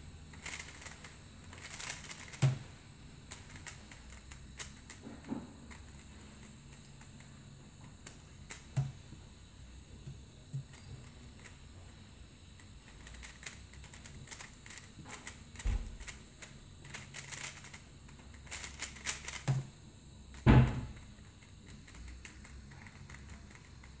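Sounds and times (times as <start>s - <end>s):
speedcube clacking turns: 0.3s - 8.9s, 10.6s - 11.6s, 12.6s - 19.7s, 20.3s - 24.0s
cube thump: 1.6s - 2.8s, 8.5s - 9.2s, 15.2s - 16.2s, 20.4s - 21.1s.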